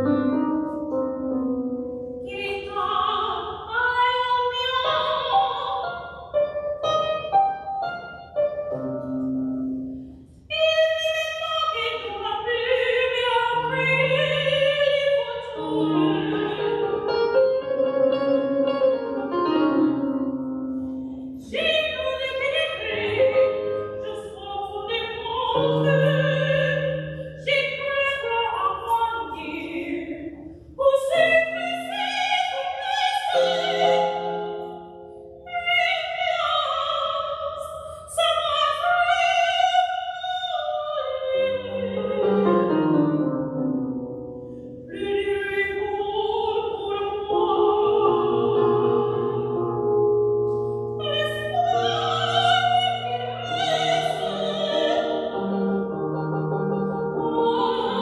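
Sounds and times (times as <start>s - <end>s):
electric keyboard: 0.0s - 3.2s, 4.5s - 29.6s, 30.2s - 35.9s, 41.2s - 58.0s
woman singing opera: 2.3s - 6.3s, 10.5s - 17.1s, 21.4s - 34.7s, 35.5s - 43.0s, 44.9s - 49.6s, 51.0s - 56.0s, 56.6s - 58.0s.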